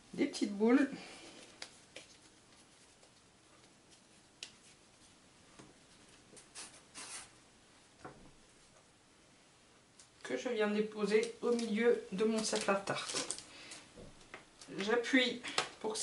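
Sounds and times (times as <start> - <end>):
hands rubbing bread dough: 1.6 - 7.4.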